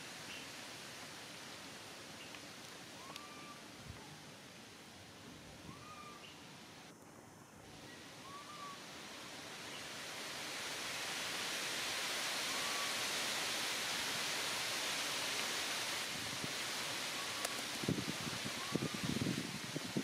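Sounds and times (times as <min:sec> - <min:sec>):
outdoor background hiss: 0:00.0 - 0:20.0
faint short whistled calls: 0:03.0 - 0:04.2, 0:05.7 - 0:06.4, 0:07.9 - 0:08.8, 0:12.5 - 0:13.0.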